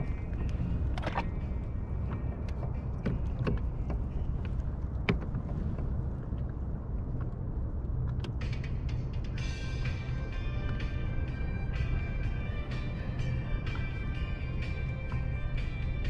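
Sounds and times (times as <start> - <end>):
music: 0.0 - 5.8, 8.1 - 16.0
low rumble of water and wind: 0.0 - 16.0
knocks and clicks from hull: 0.1 - 1.4, 2.1 - 6.4.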